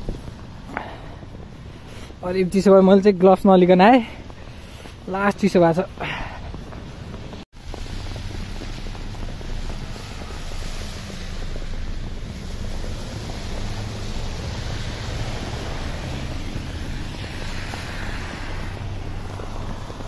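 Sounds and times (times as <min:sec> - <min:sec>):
wind on microphone: 0:00.0 - 0:02.2
tyres hissing through snow: 0:00.0 - 0:20.0.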